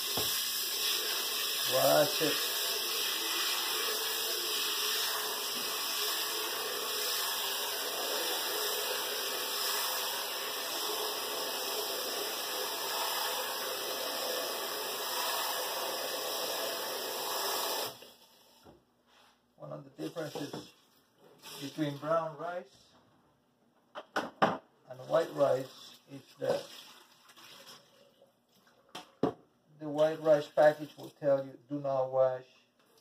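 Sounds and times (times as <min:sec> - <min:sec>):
faucet running into a pot: 0:00.0 - 0:18.6.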